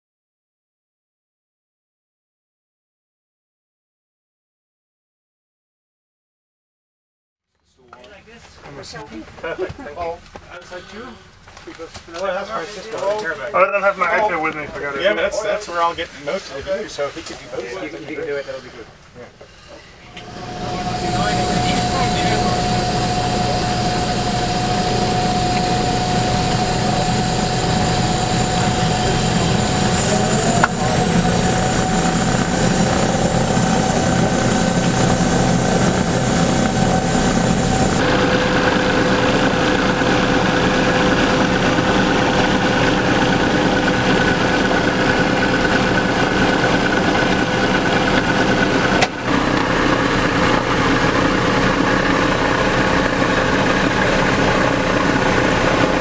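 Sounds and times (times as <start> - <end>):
propeller plane engines droning: 19.4 - 56.0.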